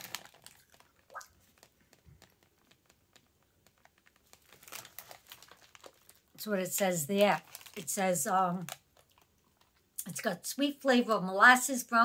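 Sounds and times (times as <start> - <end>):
foil snack bag crinkling: 0.0 - 9.8.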